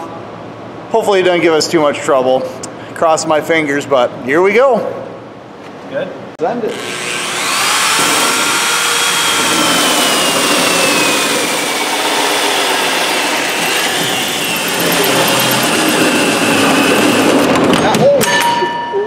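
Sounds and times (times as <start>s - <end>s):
electric drill motor whine: 6.7s - 17.6s
hole saw grinding metal: 6.7s - 17.6s.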